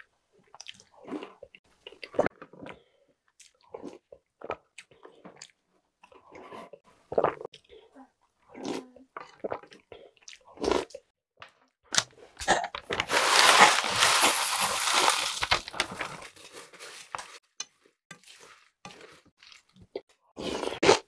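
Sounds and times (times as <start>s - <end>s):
chewing and slurping cereal: 0.4s - 11.1s, 12.4s - 21.0s
cereal poured from plastic bag: 13.1s - 16.1s.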